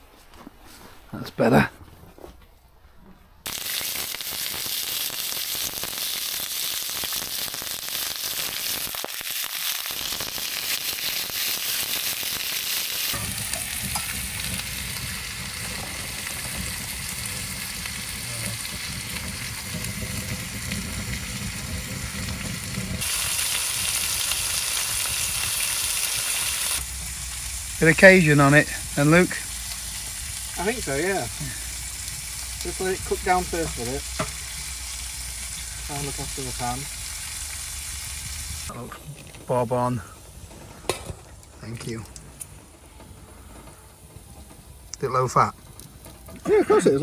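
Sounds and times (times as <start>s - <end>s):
pork sizzling in a pan: 3.5s - 38.8s.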